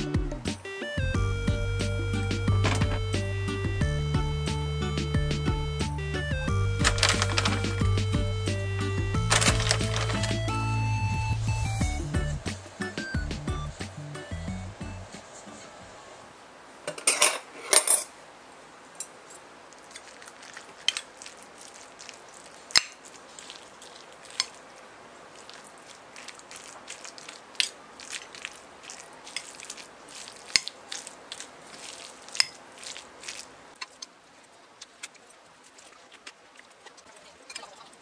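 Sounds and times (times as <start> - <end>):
faint steady hiss: 9.6 - 38.0
metal utensils scraping a plate: 16.9 - 18.1.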